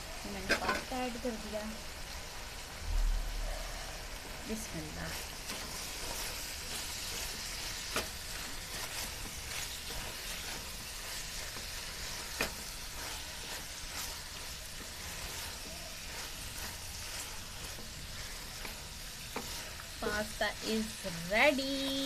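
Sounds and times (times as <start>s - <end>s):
sauce sizzling in pot: 0.0s - 22.0s.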